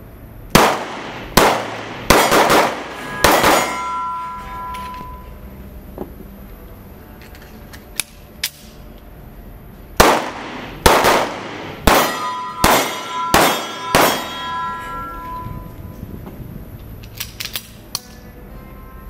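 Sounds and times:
pistol shots echoing indoors: 0:00.5 - 0:04.0, 0:10.0 - 0:14.7
pistol handling clicks: 0:07.2 - 0:08.8, 0:16.8 - 0:18.2.

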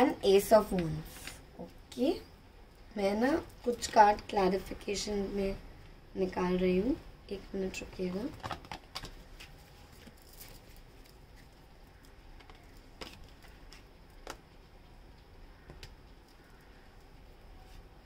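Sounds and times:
cards clicking and tapping: 0:12.3 - 0:14.5.

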